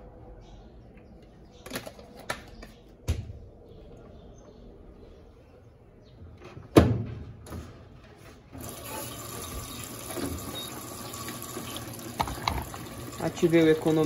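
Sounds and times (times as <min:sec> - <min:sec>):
water running into washing machine: 0:08.6 - 0:14.0.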